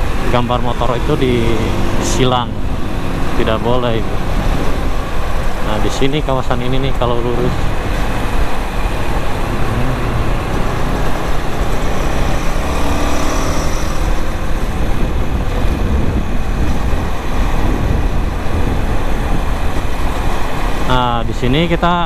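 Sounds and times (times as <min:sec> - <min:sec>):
motorcycle engine running: 0:00.0 - 0:21.0
wind buffeting microphone: 0:00.0 - 0:21.4
road traffic: 0:00.0 - 0:22.0
faint rising pitch: 0:07.5 - 0:15.2.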